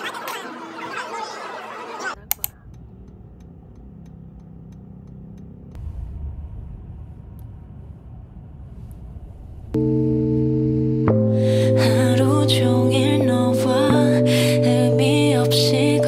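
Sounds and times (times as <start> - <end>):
low steady rumble: 2.2 - 16.0
faint light ticks: 2.3 - 5.5
music: 9.8 - 16.0.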